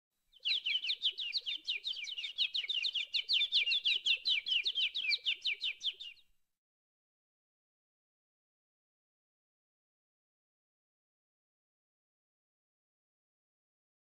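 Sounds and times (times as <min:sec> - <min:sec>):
small birds chirping: 0:00.3 - 0:06.3.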